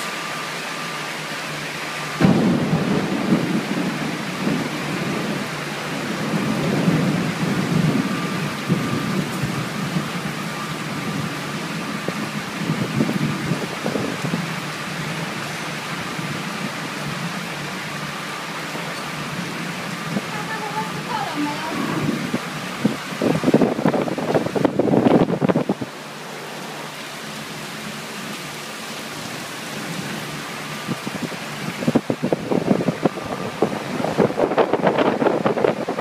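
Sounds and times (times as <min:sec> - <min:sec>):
heavy rain on metal roof: 0:00.0 - 0:36.0
low rumbling: 0:02.2 - 0:14.5.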